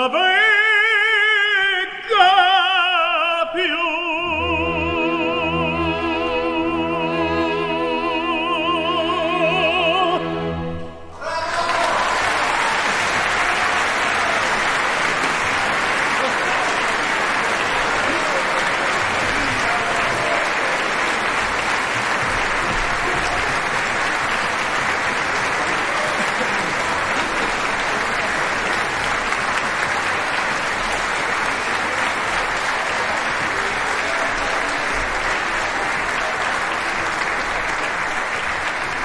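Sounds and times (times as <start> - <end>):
audience applauding: 11.2 - 39.0.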